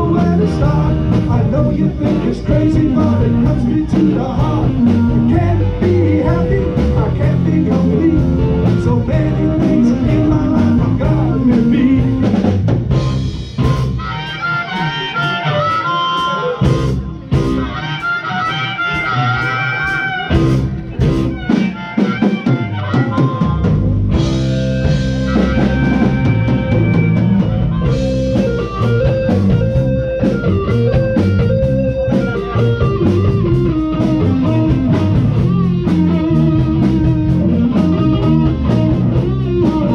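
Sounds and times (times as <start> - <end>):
high lead guitar line: 0.0 - 39.9
live blues band playing: 0.0 - 39.9.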